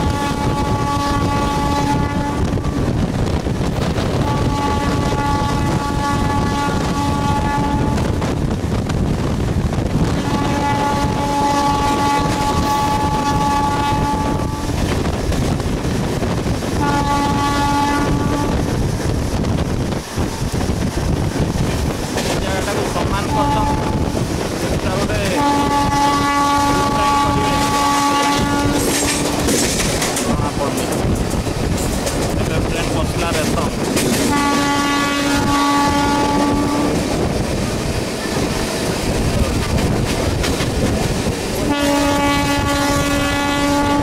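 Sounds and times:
train horn long blasts: 0.0 - 3.1, 4.1 - 8.3, 10.0 - 14.8, 16.7 - 18.8, 23.0 - 24.2, 25.0 - 29.5, 34.3 - 37.4, 41.6 - 44.0
train running rumble: 0.0 - 44.0.

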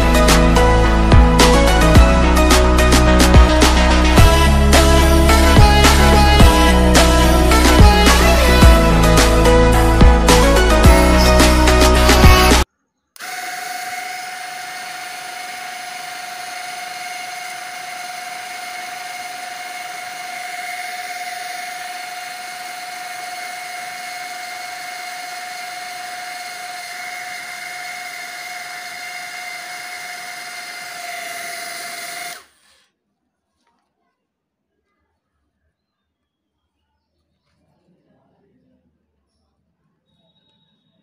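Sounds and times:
small motors high-pitched whine: 13.2 - 32.8.

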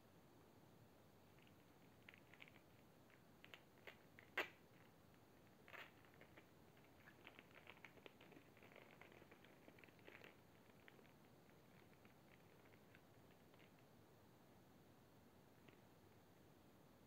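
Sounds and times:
plastic wrapper crinkling: 1.4 - 4.9, 5.6 - 13.8.

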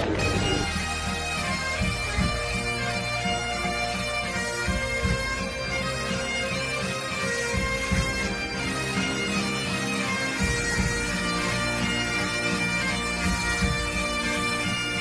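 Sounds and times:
low drum beat: 0.0 - 2.9, 4.6 - 5.7, 7.5 - 8.6
bagpipes playing a tune: 0.0 - 15.0.

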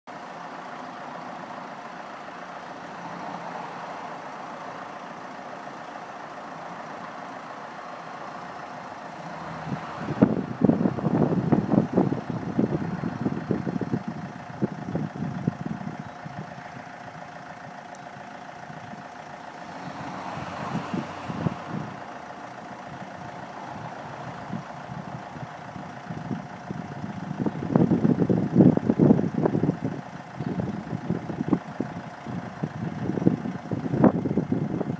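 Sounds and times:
uneven low rumbling: 8.3 - 34.9.

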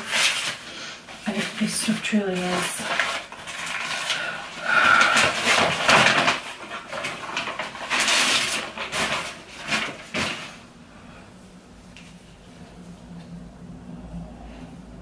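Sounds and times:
paper wrapping rustling: 0.0 - 10.6.

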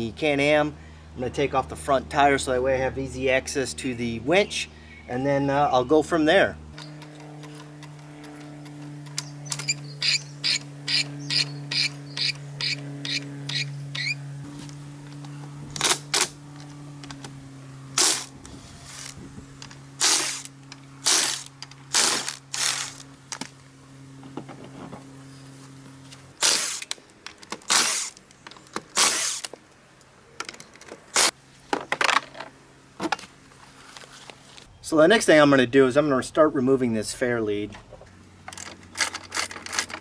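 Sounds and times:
steady low hum: 0.0 - 40.0
power tools working on wheel: 6.2 - 29.6, 31.0 - 31.4.

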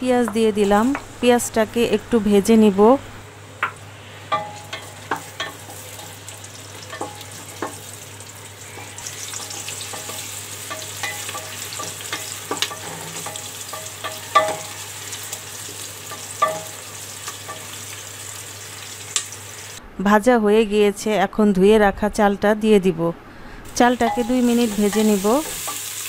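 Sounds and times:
wooden spatula tapping metal pot: 3.6 - 5.8, 9.4 - 14.8, 16.1 - 16.8, 24.0 - 25.8
onions sizzling in hot oil: 4.2 - 19.8, 23.7 - 26.0.

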